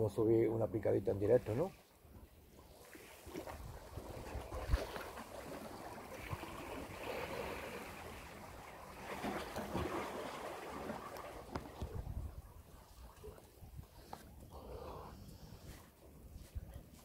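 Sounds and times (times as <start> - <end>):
small sea waves washing ashore: 2.6 - 14.2.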